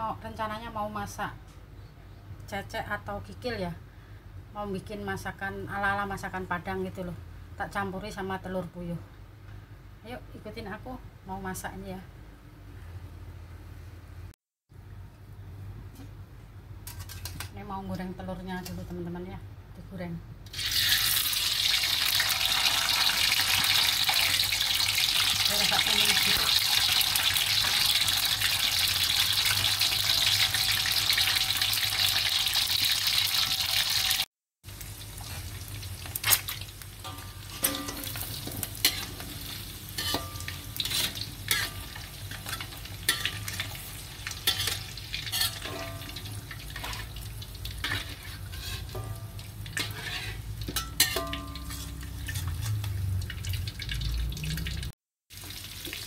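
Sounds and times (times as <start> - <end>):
metal spatula scraping wok: 16.8 - 17.5, 36.2 - 53.1
eggs sizzling in hot oil: 20.5 - 56.0.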